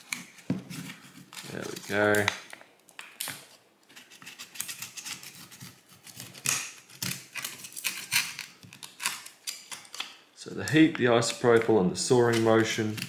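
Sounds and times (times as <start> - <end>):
metal pry tool scraping adhesive: 4.2 - 10.8.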